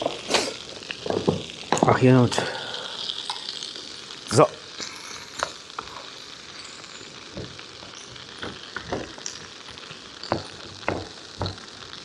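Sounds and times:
food sizzling in a frying pan: 0.0 - 12.0
knocks against a pan: 8.4 - 9.2, 10.3 - 11.7.

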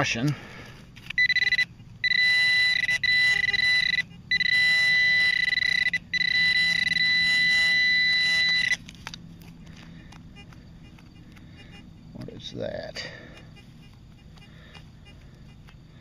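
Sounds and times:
high continuous alert tone: 1.2 - 8.8.

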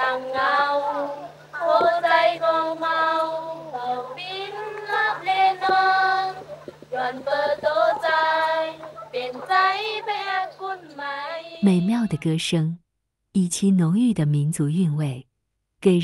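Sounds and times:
young women singing together: 0.0 - 12.1.

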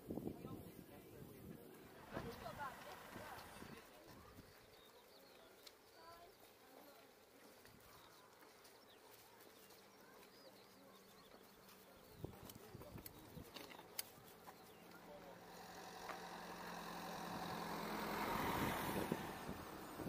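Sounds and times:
faint chirps: 3.2 - 18.2.

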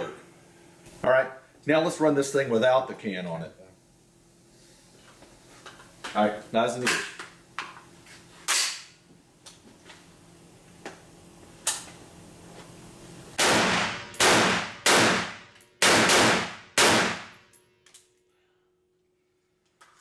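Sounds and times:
loud rifle shots echoing: 13.4 - 17.4.

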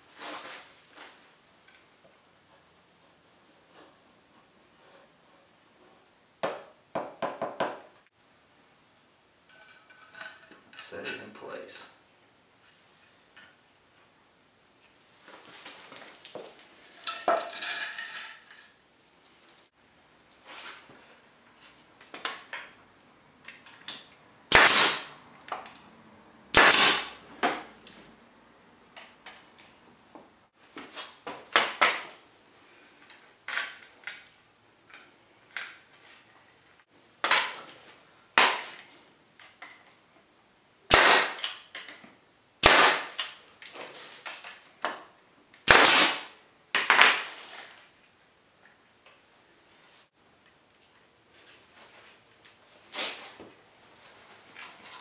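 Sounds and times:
brad nailer shots: 24.5 - 25.2, 26.5 - 27.6, 38.4 - 38.8, 40.9 - 41.6, 42.6 - 43.4, 45.6 - 47.3.

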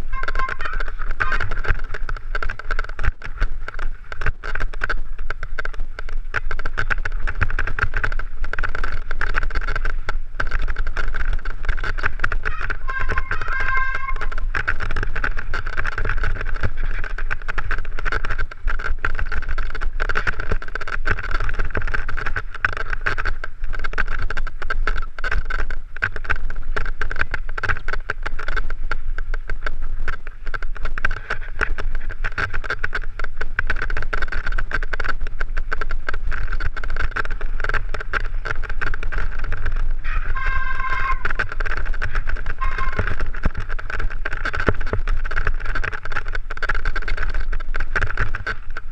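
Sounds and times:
bike clattering and rattling: 0.0 - 48.9
wind rumbling on microphone: 0.0 - 48.9
high-pitched squeal: 12.5 - 14.5, 40.0 - 41.5, 42.5 - 43.2.

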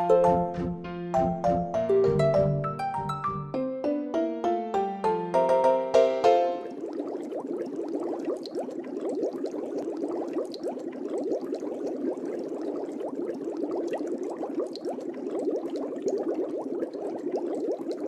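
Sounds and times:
air bubbling through water: 6.5 - 18.0.

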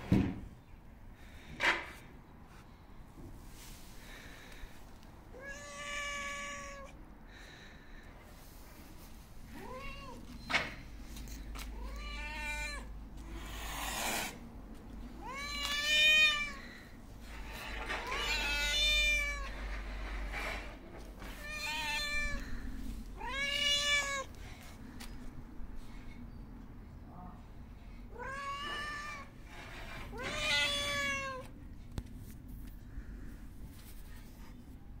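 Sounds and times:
cat meowing: 5.3 - 7.0, 9.5 - 10.4, 11.7 - 14.0, 15.2 - 16.8, 18.0 - 19.6, 21.2 - 24.4, 28.1 - 29.3, 30.1 - 31.5
cat hissing: 11.7 - 14.6, 15.2 - 24.4.

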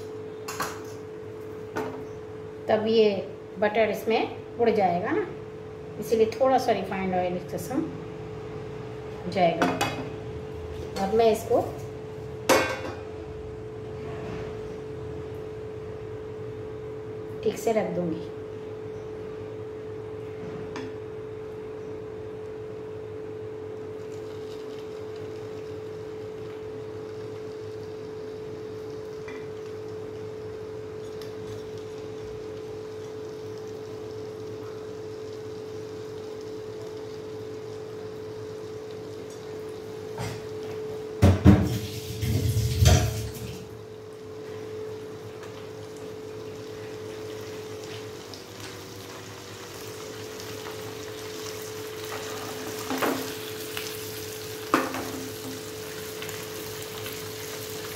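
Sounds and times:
fish sizzling in a pan: 45.6 - 57.9.

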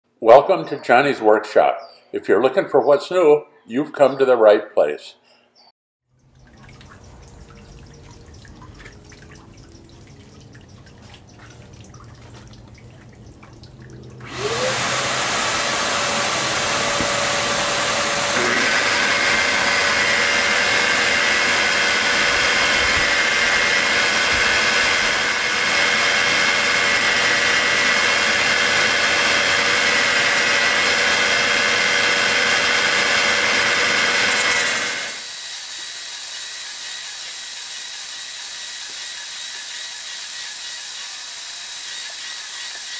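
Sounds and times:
polisher motor whining: 14.2 - 42.9
glass grinding on sanding disc: 33.5 - 42.9.

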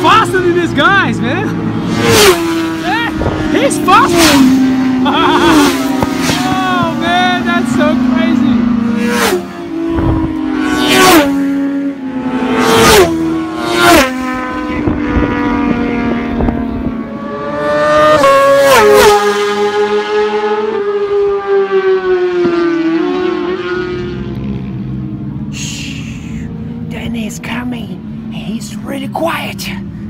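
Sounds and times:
racing motorcycles passing: 0.0 - 30.0.

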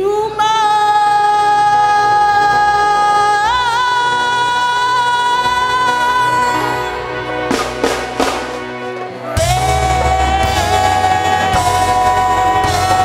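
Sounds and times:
gospel band music: 1.9 - 13.0
drum and cymbal hits: 5.4 - 8.8, 9.4 - 13.0
singer holding high note: 9.4 - 13.0.

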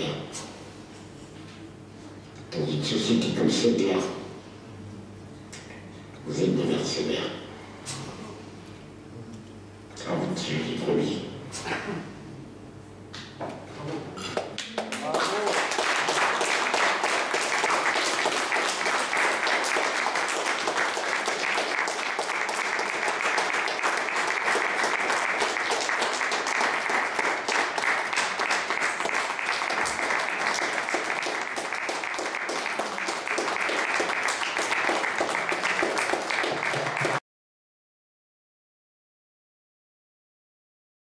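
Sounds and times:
audience applauding: 14.4 - 37.2.

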